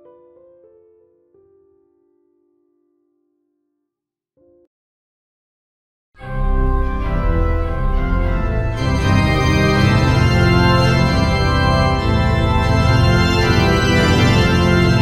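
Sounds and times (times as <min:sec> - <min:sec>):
organ-like held chords: 0:06.2 - 0:15.0.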